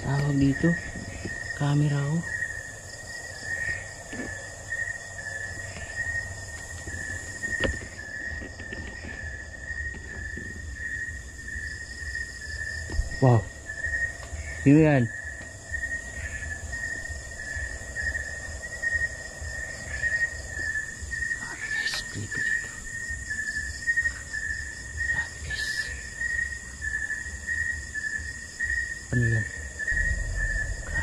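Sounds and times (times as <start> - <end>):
low rumble of movement: 0.0 - 23.3, 29.6 - 31.0
high-pitched insect buzz: 0.0 - 31.0
insect chirping: 0.0 - 31.0.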